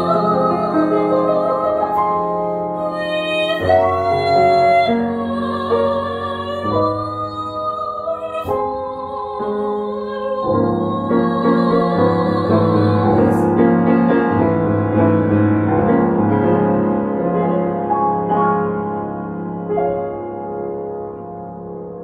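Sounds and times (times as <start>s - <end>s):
woman singing classically: 0.0s - 13.6s
grand piano: 0.0s - 22.0s.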